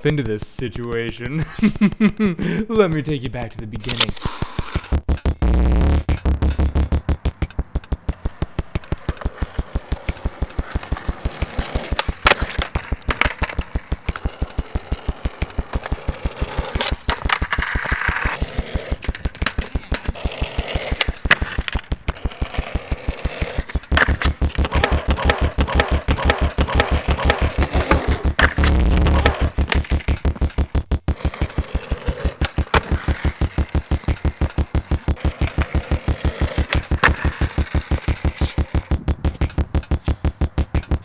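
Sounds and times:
electronic music with pulsing beat: 0.0s - 41.0s.

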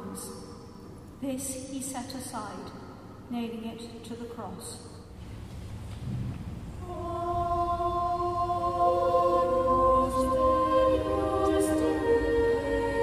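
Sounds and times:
choir singing held chords: 6.7s - 13.0s.

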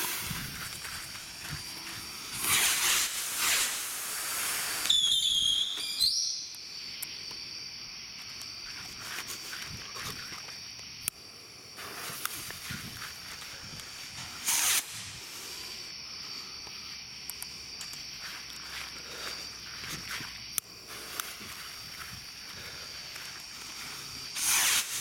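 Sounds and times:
fuses hissing: 0.0s - 5.8s, 11.7s - 18.8s, 19.5s - 25.0s
rockets launching with whooshes: 0.0s - 5.8s, 14.0s - 15.7s, 24.3s - 25.0s
insects chirring: 0.0s - 25.0s
high gliding whistle: 4.6s - 6.6s.

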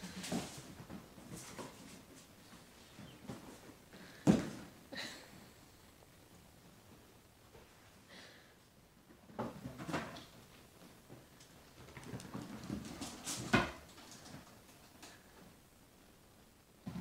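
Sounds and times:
kittens scampering on wooden floor: 0.0s - 3.8s, 9.4s - 15.2s.

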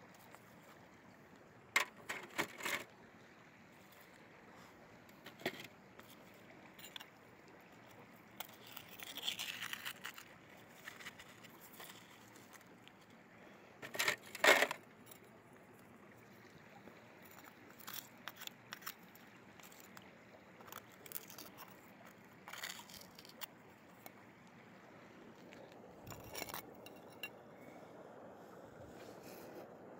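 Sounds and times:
gravel and rocks clinking: 5.2s - 7.2s, 7.8s - 13.0s, 17.2s - 24.1s, 25.4s - 27.4s
metal tool scraping rock: 8.4s - 12.6s, 13.8s - 14.8s, 17.3s - 20.0s, 20.6s - 23.5s, 26.0s - 27.4s
rocks clattering onto plastic screen: 13.8s - 14.8s.

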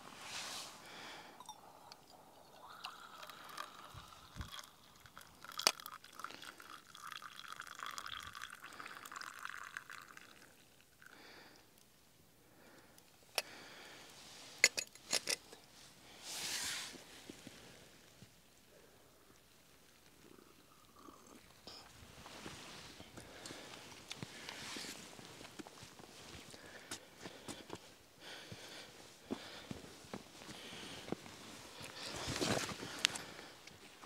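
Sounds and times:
brief hiss: 0.1s - 0.8s, 16.2s - 17.1s
coffee pouring into metal mug: 1.4s - 11.1s, 20.1s - 21.8s.

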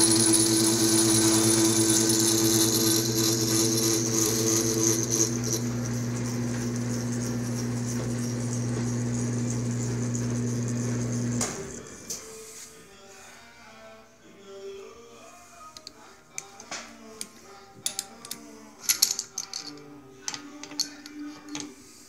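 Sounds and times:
milling machine motor hum: 0.0s - 12.1s.

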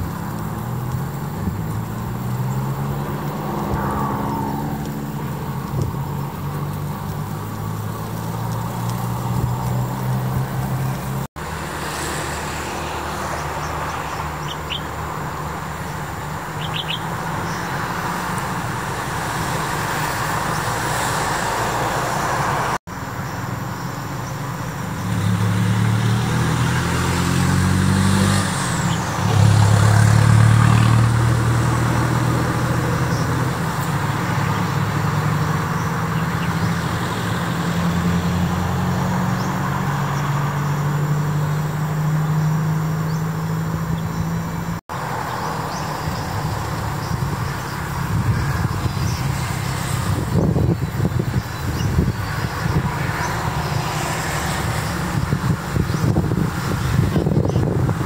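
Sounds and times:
vehicle engines running: 0.0s - 58.0s
faint bird chirps: 16.6s - 17.1s.

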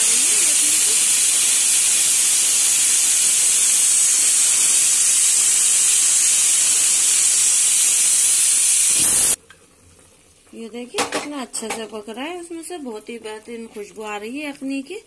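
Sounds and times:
pressure cooker steam hissing: 0.0s - 9.4s.

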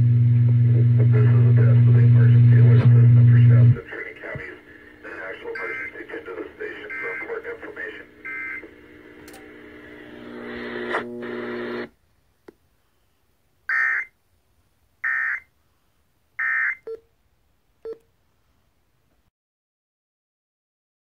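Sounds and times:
radio tones and hiss: 0.1s - 11.9s
alert data bursts: 5.1s - 7.5s
click: 9.2s - 9.5s.

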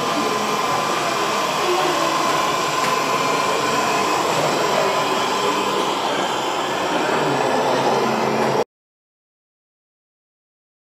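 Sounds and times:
model railcar whirring: 0.0s - 8.6s.

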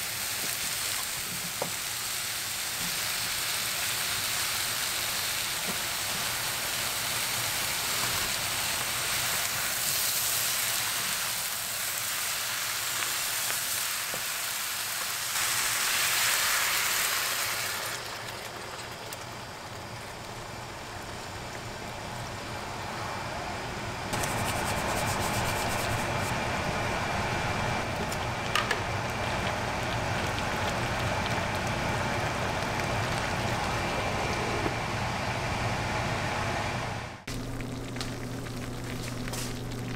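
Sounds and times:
food sizzling in a pan: 0.0s - 18.2s
low steady hum: 18.1s - 39.9s.

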